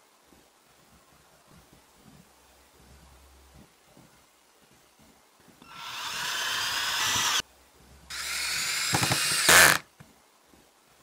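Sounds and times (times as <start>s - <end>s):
cordless drill motor whine: 5.7s - 7.4s, 8.1s - 9.8s.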